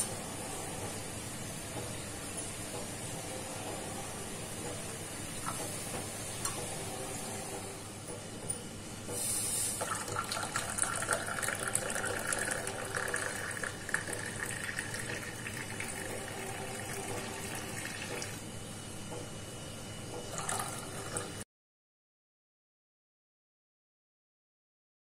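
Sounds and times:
milk pouring and splashing: 9.8s - 18.4s.

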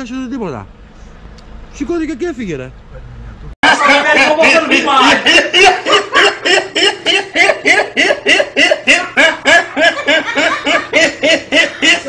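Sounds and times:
person laughing: 3.6s - 12.0s.

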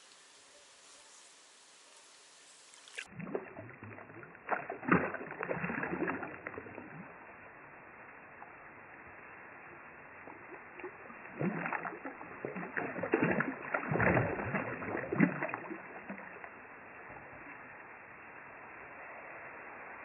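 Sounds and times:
fish splashing in water: 2.7s - 7.3s, 9.6s - 16.7s.

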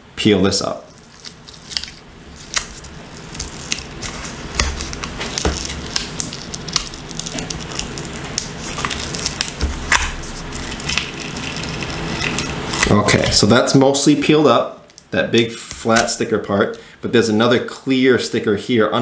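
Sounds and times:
sticker peeling crackle: 0.9s - 13.4s.

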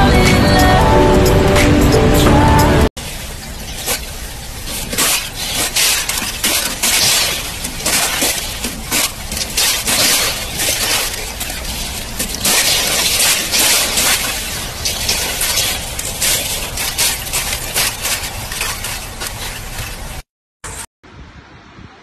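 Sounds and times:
water rushing over weir: 3.0s - 20.2s.

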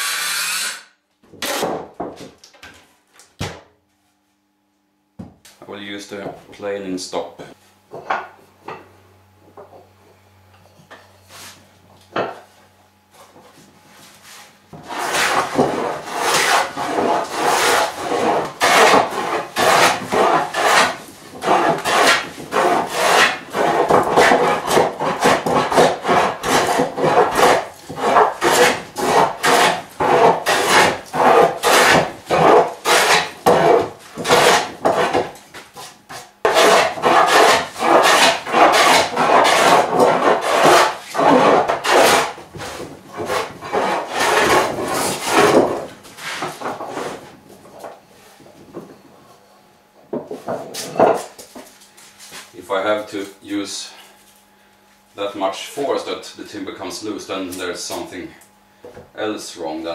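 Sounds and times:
hand plane shaving wood: 14.2s - 47.2s.

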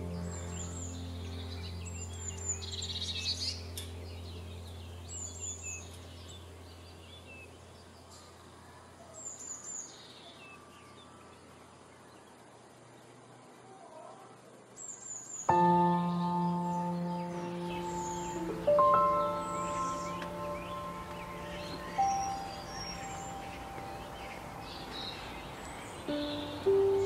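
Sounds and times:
low sustained music chord: 0.0s - 9.0s, 15.5s - 27.0s
soft bird chirps: 0.0s - 27.0s
high thin descending bird notes: 15.5s - 27.0s.

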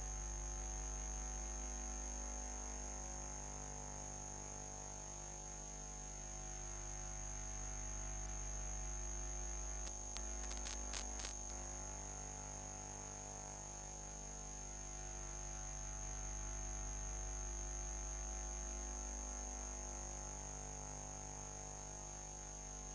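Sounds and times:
electrical hum: 9.8s - 11.8s
sharp clicks: 9.9s - 11.6s.

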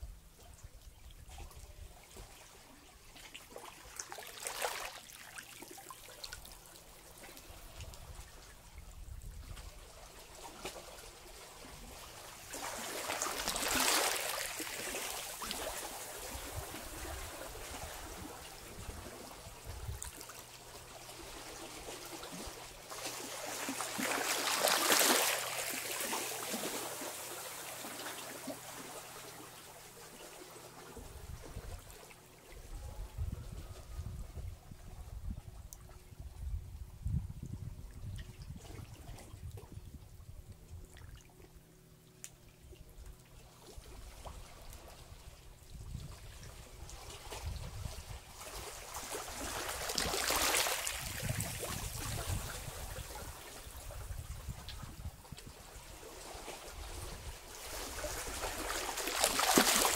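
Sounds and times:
sea waves washing over rocks: 22.5s - 28.2s, 57.6s - 59.9s.

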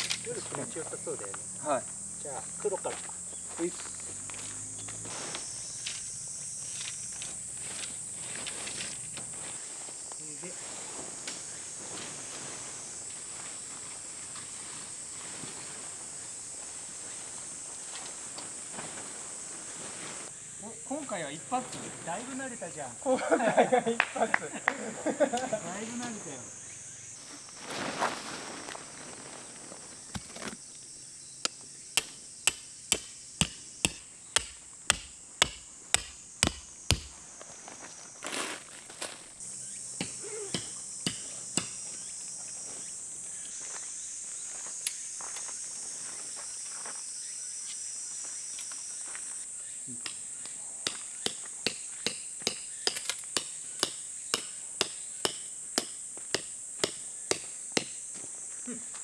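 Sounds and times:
high insect buzz: 0.0s - 59.0s
metal stake hammered into ground: 31.4s - 37.2s, 40.0s - 41.8s, 50.0s - 58.0s.

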